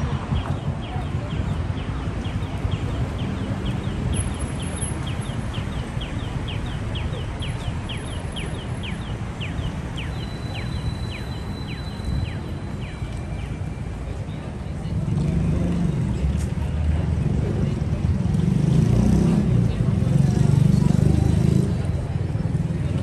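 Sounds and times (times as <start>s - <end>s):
city street noise: 0.0s - 23.0s.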